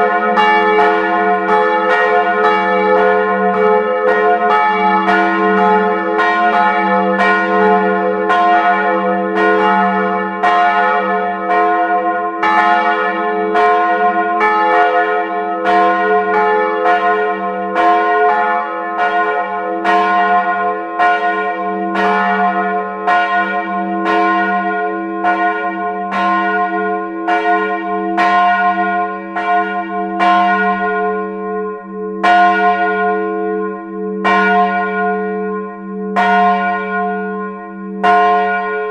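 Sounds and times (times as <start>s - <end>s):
church bells ringing: 0.0s - 38.9s
continuous bell hum: 29.4s - 38.9s.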